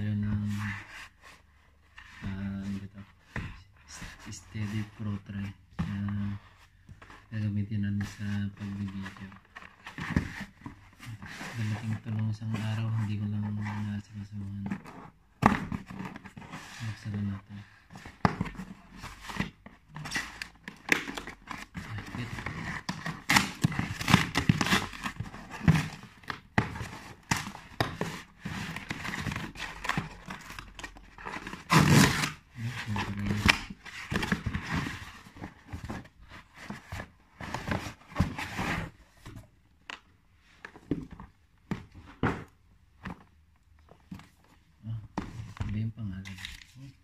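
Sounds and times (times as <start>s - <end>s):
cardboard and paper rustling: 0.1s - 47.0s
cardboard tearing: 26.7s - 35.1s.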